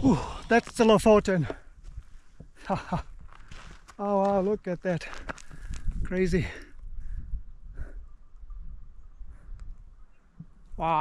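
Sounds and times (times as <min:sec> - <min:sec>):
gusting wind rumble on microphone: 0:05.2 - 0:10.8.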